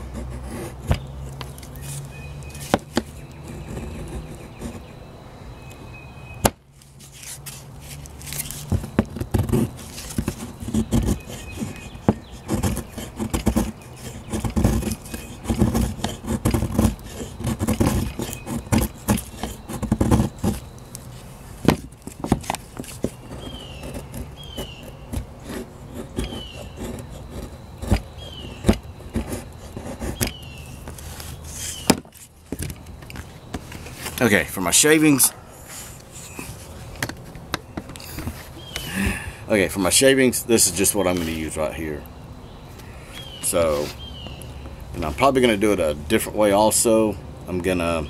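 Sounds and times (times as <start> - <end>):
knife scraping wood stick: 0.0 - 4.9, 6.8 - 34.4, 40.7 - 41.6
knocks of wood and blade: 0.8 - 1.7, 2.5 - 3.8, 6.4 - 6.6, 27.8 - 29.4, 30.1 - 30.4, 31.7 - 33.8.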